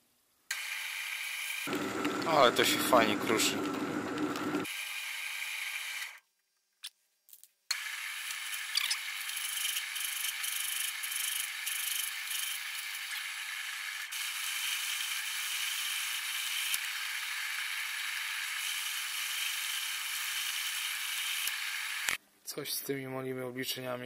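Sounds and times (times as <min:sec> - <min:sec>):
lathe whirring: 0:01.4 - 0:04.7.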